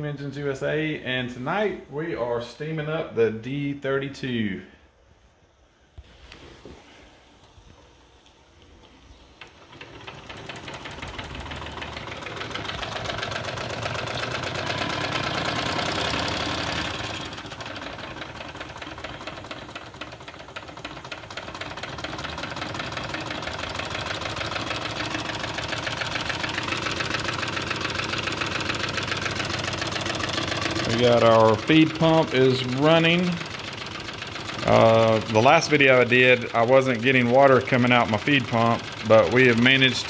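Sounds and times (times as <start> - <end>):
model steam engine chuffing: 9.2 - 40.0.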